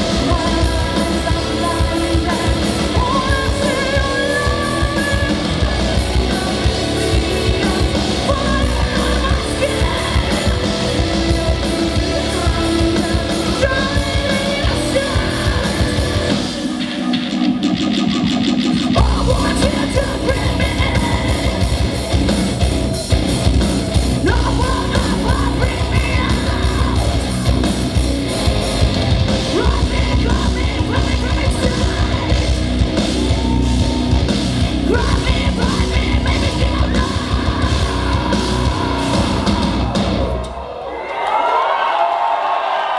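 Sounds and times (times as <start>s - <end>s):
woman screaming and singing: 0.0s - 16.8s, 19.0s - 21.8s, 24.2s - 27.5s, 29.4s - 40.0s
metal band playing live: 0.0s - 40.9s.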